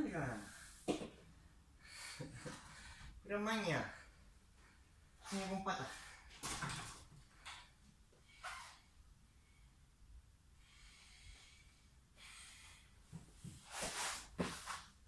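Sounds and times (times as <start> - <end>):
man breathing hard: 1.8 - 3.2, 10.6 - 13.6.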